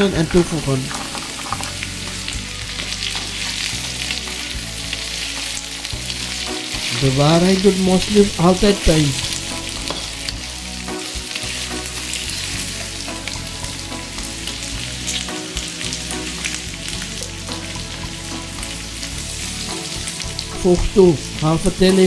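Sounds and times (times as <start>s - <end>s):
food sizzling in oil: 0.0s - 22.0s.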